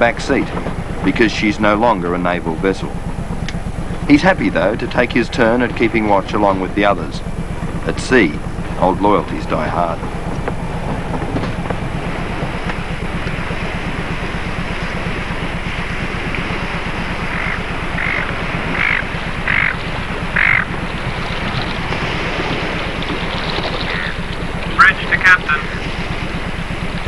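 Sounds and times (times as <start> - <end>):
low machinery rumble: 0.0 - 27.0
wind and sea rushing: 0.0 - 27.0
short hoarse calls: 17.2 - 20.8.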